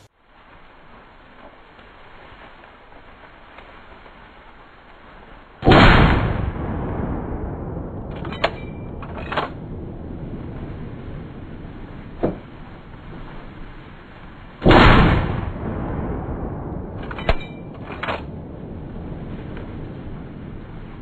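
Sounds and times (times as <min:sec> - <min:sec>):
animals running through dry leaves: 0:00.0 - 0:05.7, 0:09.6 - 0:21.0
loud sudden bangs: 0:05.6 - 0:10.8, 0:14.6 - 0:18.7.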